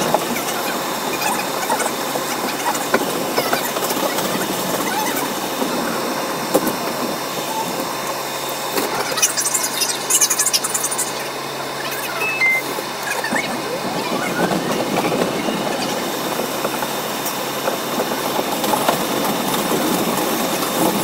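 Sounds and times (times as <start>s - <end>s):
train wheels on rails: 0.0s - 9.9s, 10.9s - 21.0s
rail clicks: 0.0s - 21.0s
high scratchy wheel squealing: 8.5s - 16.6s.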